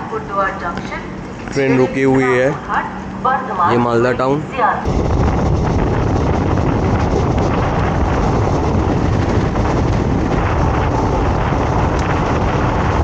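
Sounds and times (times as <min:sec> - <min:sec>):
moving vehicle rumble: 0:04.6 - 0:13.0
wind noise on microphone: 0:04.8 - 0:13.0.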